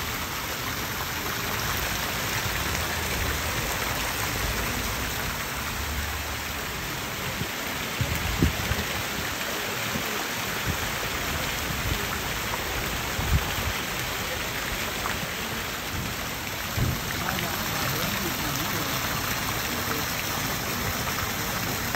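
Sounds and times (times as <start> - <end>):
fountain water splashing: 0.0 - 21.9.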